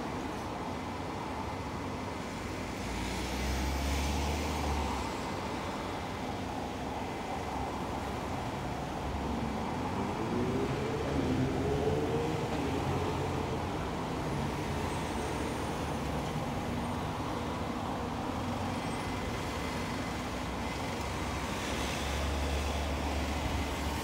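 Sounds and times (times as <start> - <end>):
car and bus engines: 0.0 - 24.0
tyres on road: 0.0 - 24.0.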